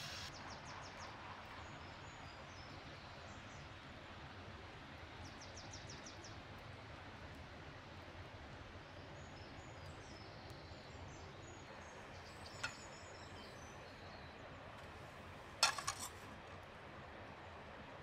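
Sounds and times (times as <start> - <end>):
faint high bird chirps: 11.6 - 14.3
cooking gear clicks and knocks: 15.6 - 16.2.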